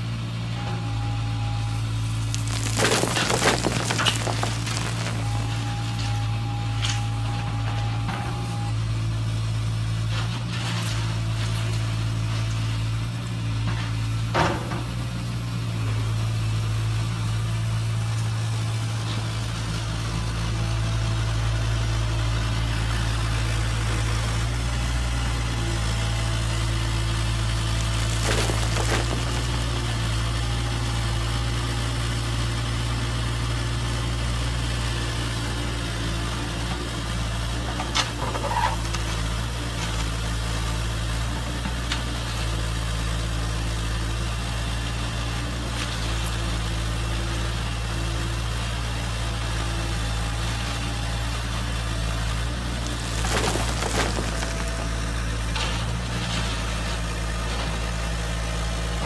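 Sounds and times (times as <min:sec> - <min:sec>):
short clatter: 0:02.2 - 0:06.2, 0:27.7 - 0:30.0, 0:52.8 - 0:56.5.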